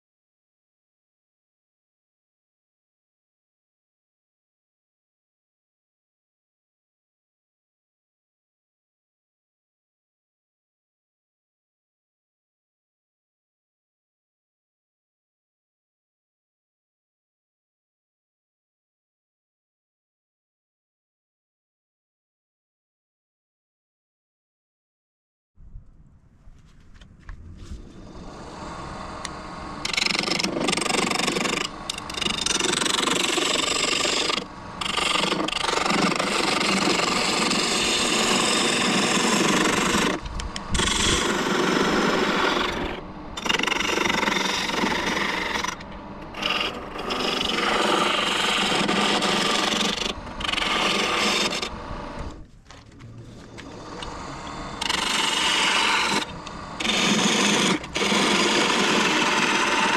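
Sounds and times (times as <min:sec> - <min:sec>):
lathe gouge scraping wood: 0:27.9 - 0:52.4, 0:53.2 - 0:59.9.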